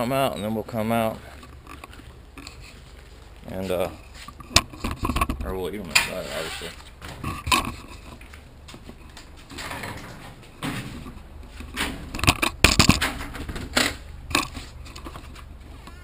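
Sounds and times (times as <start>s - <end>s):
soft shuffling: 0.4s - 9.6s.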